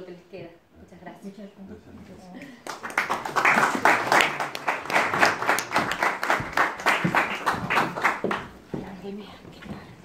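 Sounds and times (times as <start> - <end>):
audience applauding: 2.6 - 8.5
sharp hand claps close by: 2.7 - 8.4.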